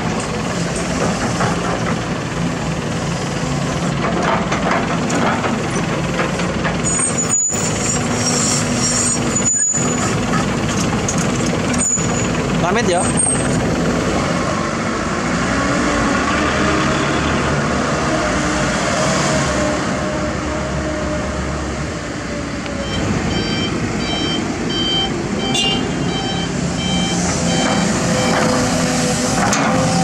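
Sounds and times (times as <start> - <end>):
diesel truck engine running: 0.0 - 18.8, 19.5 - 30.0
reversing alarm beeping: 22.7 - 28.8.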